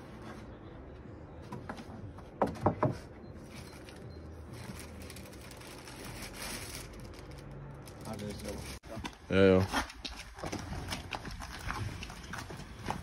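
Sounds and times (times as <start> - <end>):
hands rummaging among packaged food: 3.4 - 9.2.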